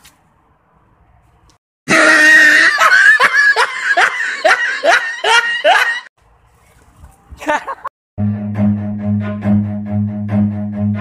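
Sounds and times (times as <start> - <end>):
comic laughter: 1.9 - 6.1, 7.4 - 7.9.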